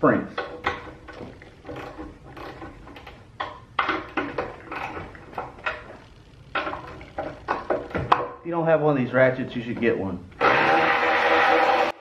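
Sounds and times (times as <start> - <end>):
electric ratchet spinning: 10.4 - 12.0.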